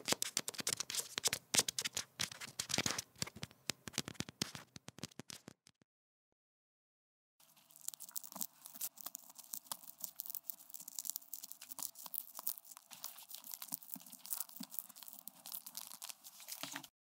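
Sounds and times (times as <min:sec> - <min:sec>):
rat scratching and crunching: 0:07.4 - 0:16.9.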